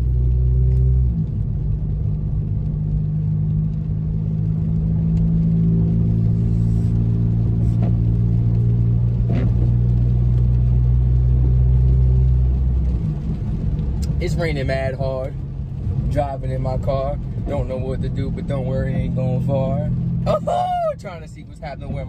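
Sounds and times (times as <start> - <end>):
car engine and road rumble: 0.0 - 22.0.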